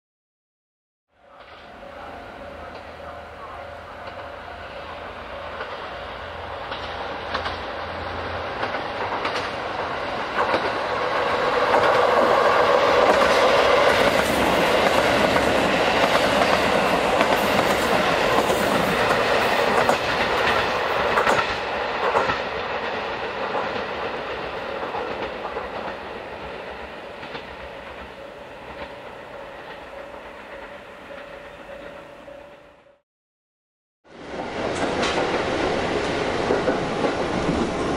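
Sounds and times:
diesel railcars passing: 1.1s - 33.0s, 34.1s - 37.9s
wheels clicking over rail joints: 6.6s - 26.4s.

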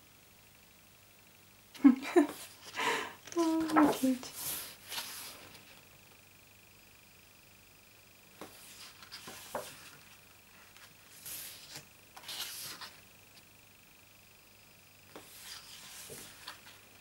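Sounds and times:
book pages swishing: 3.4s - 5.7s, 8.4s - 10.0s, 10.6s - 13.0s, 15.1s - 16.8s.

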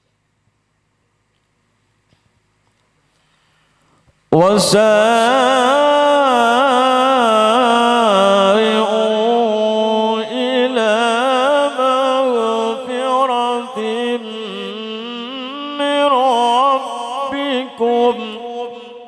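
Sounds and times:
short breaths: 3.0s - 4.2s
man chanting into a microphone: 4.3s - 19.0s.

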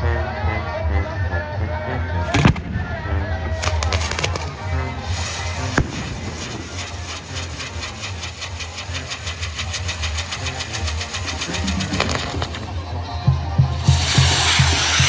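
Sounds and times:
sharp bang: 2.3s - 9.1s
firework spraying sparks hissing: 3.5s - 12.7s, 13.8s - 15.0s.

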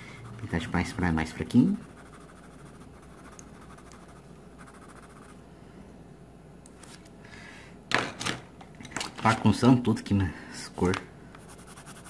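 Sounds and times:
pencil scratching on paper: 0.0s - 5.4s, 11.4s - 12.0s.

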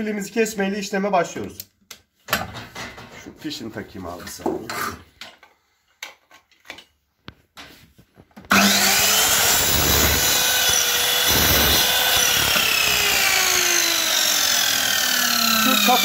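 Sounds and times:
miter saw cutting aluminium: 8.5s - 16.0s.

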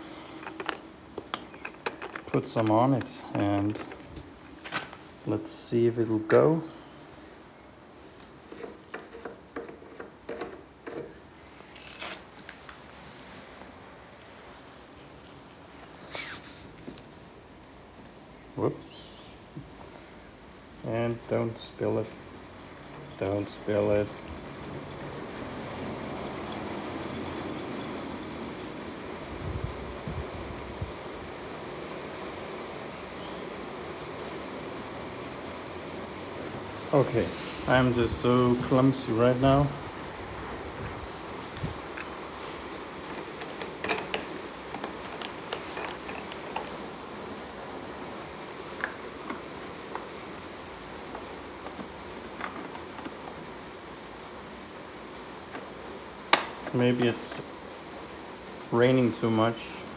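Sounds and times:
gasoline pouring into tank: 21.8s - 29.3s.

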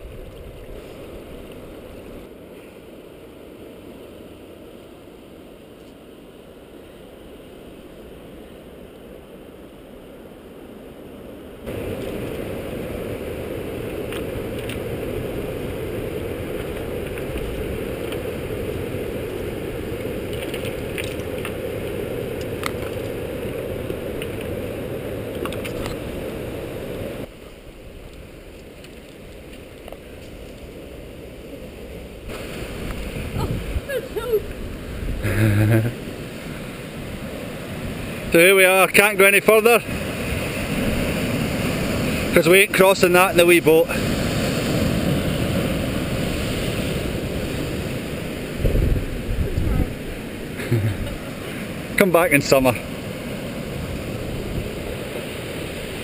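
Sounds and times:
surf washing over shingle: 11.6s - 56.0s
stones clicking: 20.2s - 23.2s.

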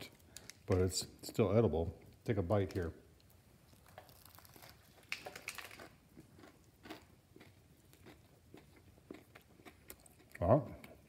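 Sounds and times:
crunching and chewing: 3.2s - 11.0s.

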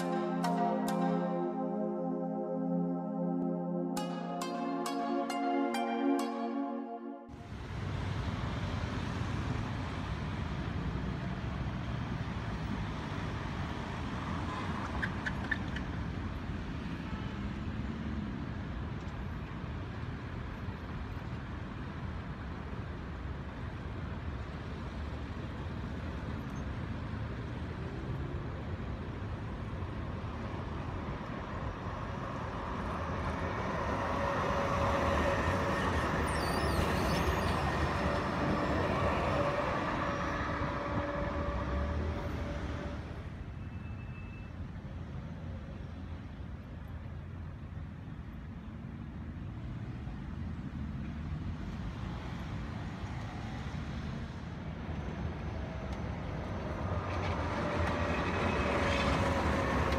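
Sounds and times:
electric tram passing: 7.3s - 43.7s, 49.6s - 59.9s
cars and truck driving past: 23.3s - 46.2s, 50.6s - 59.9s
tram squeal: 31.5s - 44.8s, 54.9s - 59.9s.

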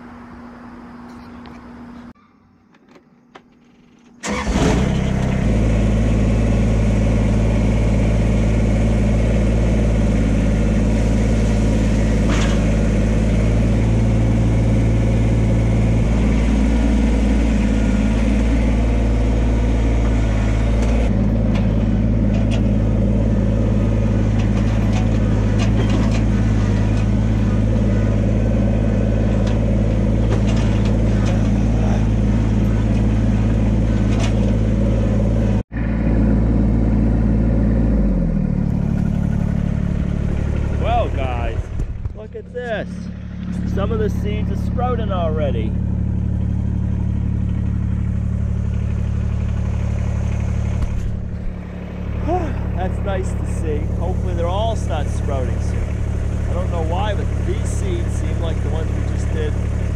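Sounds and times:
tractor diesel engine running: 0.0s - 59.9s
knocks and rattles: 24.1s - 27.8s, 29.3s - 34.9s.

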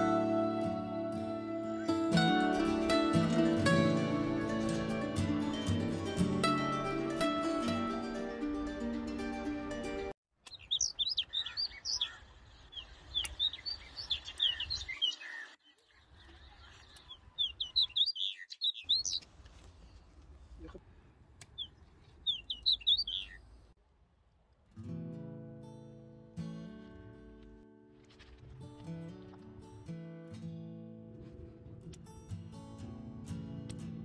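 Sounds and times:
small birds twittering: 10.4s - 20.1s, 21.4s - 23.6s.

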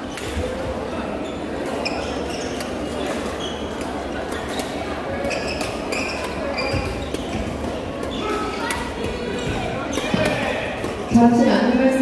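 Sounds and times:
murmur of voices: 0.0s - 12.0s
sneaker squeaks on floor: 1.2s - 10.5s
racket hitting shuttlecock: 2.6s - 11.1s.

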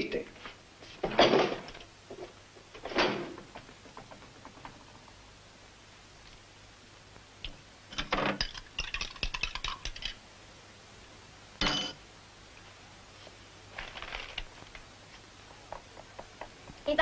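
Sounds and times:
small hard objects clicking: 8.4s - 10.2s.

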